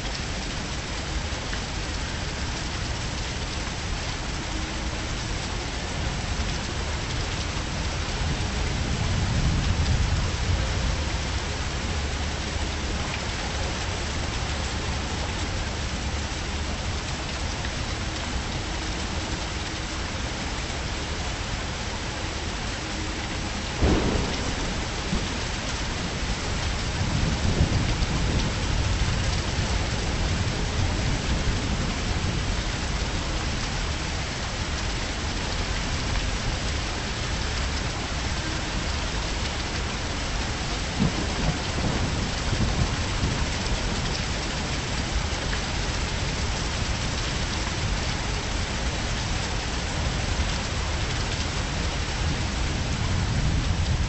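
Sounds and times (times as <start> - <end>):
heavy rain falling: 0.0 - 54.0
low rumbles of thunder: 23.8 - 32.5, 40.8 - 44.1.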